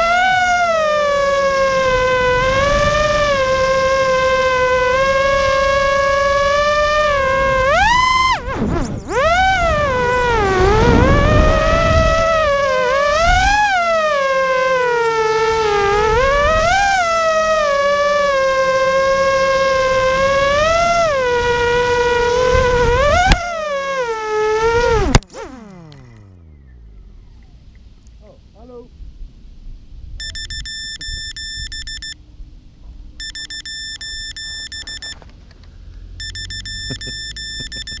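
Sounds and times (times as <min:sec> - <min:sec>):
wind rumble on microphone: 0:00.0 - 0:23.6, 0:26.6 - 0:33.2
quadcopter motors whining: 0:00.0 - 0:27.8, 0:30.2 - 0:32.2, 0:33.2 - 0:38.0
rapid high buzzer beeps: 0:30.2 - 0:32.2, 0:33.2 - 0:35.2, 0:36.2 - 0:38.0.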